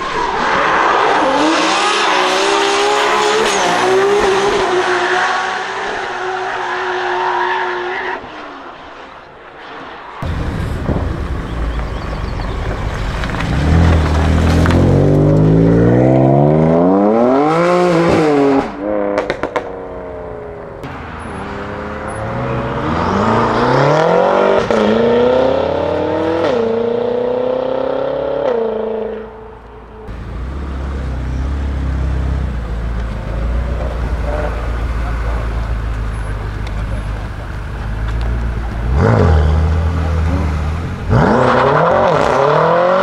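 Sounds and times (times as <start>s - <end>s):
exhaust crackles: 10.2s - 16.3s
car engine accelerating hard: 10.2s - 19.6s, 20.2s - 29.4s, 30.0s - 43.0s
low steady engine rumble: 30.1s - 39.0s.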